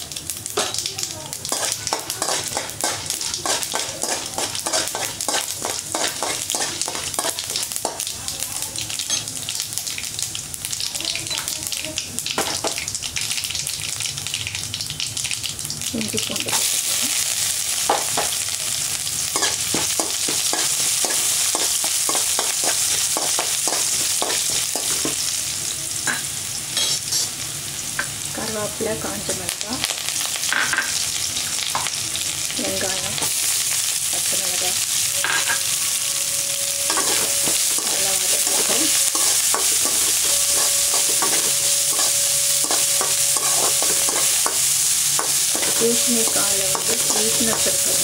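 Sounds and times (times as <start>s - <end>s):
seeds sizzling in hot oil: 0.0s - 48.0s
spatula scraping a pan: 1.5s - 8.0s, 36.9s - 48.0s.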